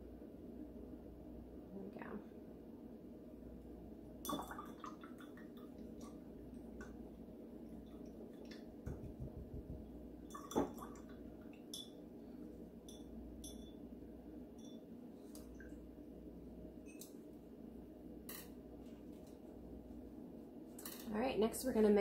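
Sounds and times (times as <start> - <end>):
brush clinking against glass: 11.7 - 12.0, 12.9 - 13.8.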